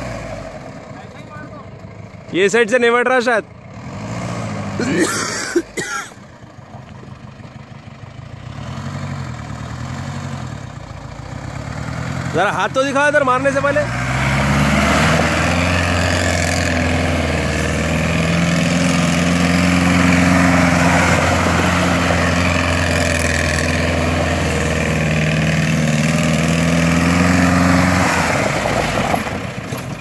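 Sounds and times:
engine at high revs: 0.0s - 0.8s, 2.8s - 5.5s, 8.3s - 29.6s.

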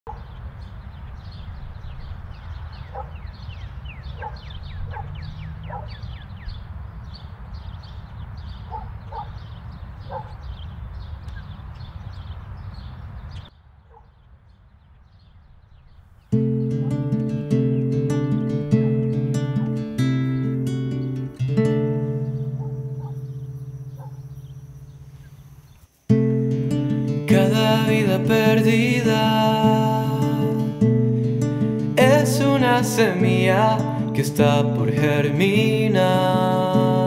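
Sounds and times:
dog barking: 0.1s - 0.3s, 2.9s - 3.3s, 4.1s - 6.0s, 8.6s - 9.4s, 10.0s - 10.4s, 13.8s - 14.2s, 22.6s - 23.2s, 23.9s - 24.3s
birds chirping: 0.1s - 37.0s
acoustic guitar strumming: 16.3s - 37.0s.

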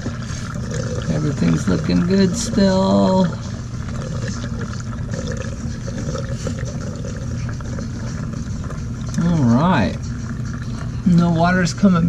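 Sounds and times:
water rushing through hose: 0.0s - 11.8s
drain pump humming: 0.0s - 12.0s.

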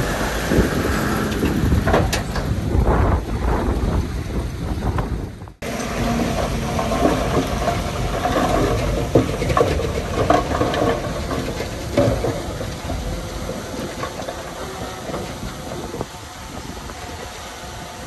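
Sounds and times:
heavy diesel machinery running: 0.0s - 18.0s
machinery knocks and clanks: 1.0s - 2.9s, 5.6s - 16.1s.

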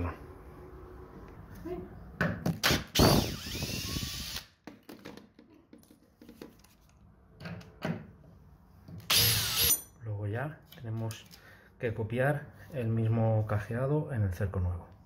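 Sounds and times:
cordless drill motor: 3.0s - 4.5s.

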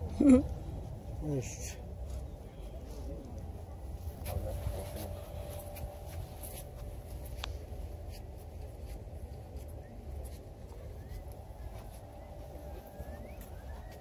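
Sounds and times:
rustling on microphone: 2.0s - 14.0s.

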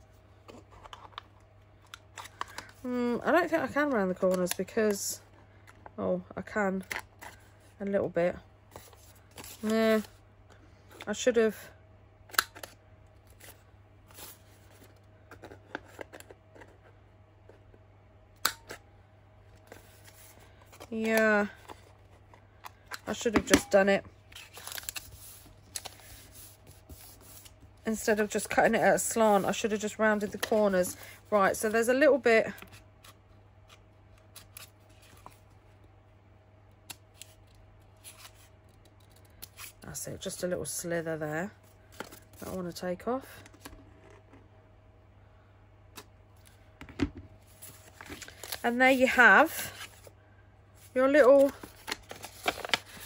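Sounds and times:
paper rustling: 24.3s - 27.5s, 47.5s - 50.1s, 51.2s - 53.0s.

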